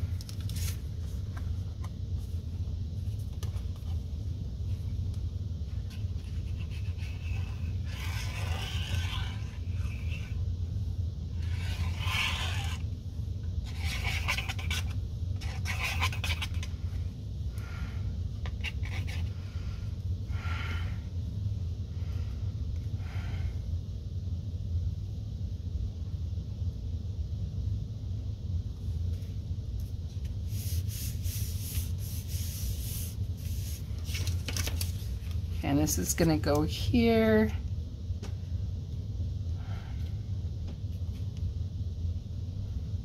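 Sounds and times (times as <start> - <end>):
steady low hum: 0.0 - 43.0
cardstock rustling and scraping: 0.1 - 1.9, 5.8 - 10.4, 13.7 - 16.8, 30.2 - 35.4.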